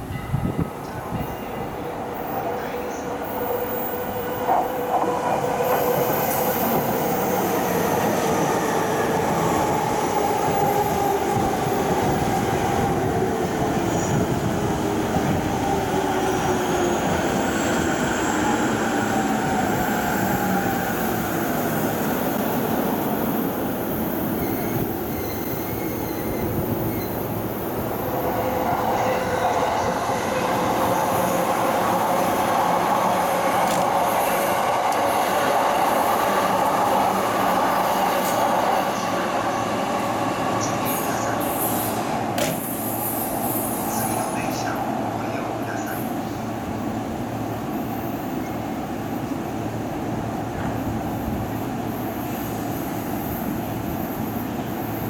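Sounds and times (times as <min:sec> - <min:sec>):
wind buffeting microphone: 0:00.0 - 0:01.6, 0:09.8 - 0:17.2
train braking: 0:00.0 - 0:44.8.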